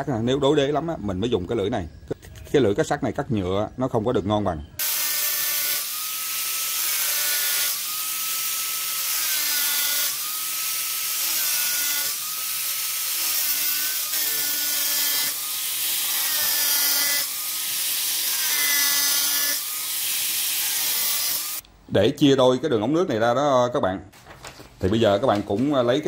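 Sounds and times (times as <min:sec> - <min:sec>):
angle grinder cutting plastic pipe: 0:04.8 - 0:21.6.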